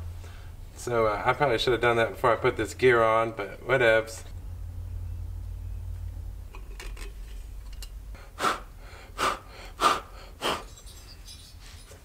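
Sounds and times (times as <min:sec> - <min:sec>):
steady low hum: 0:00.0 - 0:12.0
faint clicks of parts handled: 0:06.0 - 0:08.0
person puffing breath: 0:08.1 - 0:10.9.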